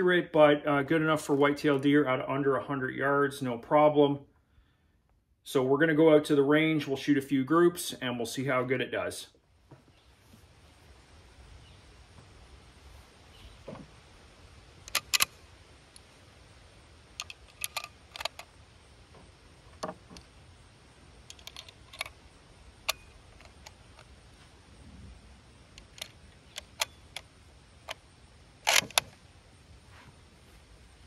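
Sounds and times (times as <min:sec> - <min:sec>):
rifle metallic clicks: 0:14.8 - 0:16.0, 0:17.2 - 0:18.5, 0:21.2 - 0:22.2, 0:22.8 - 0:24.1, 0:25.7 - 0:28.0, 0:28.6 - 0:29.2.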